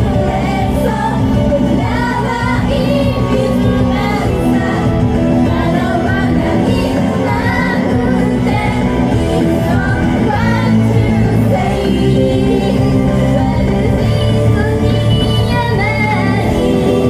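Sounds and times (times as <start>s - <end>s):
loud pop music: 0.0s - 17.0s
women singing into microphones: 0.0s - 17.0s.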